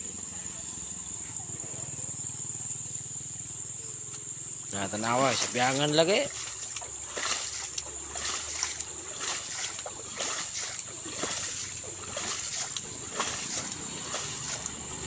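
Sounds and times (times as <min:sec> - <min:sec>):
muddy water splashing: 0:04.6 - 0:15.0.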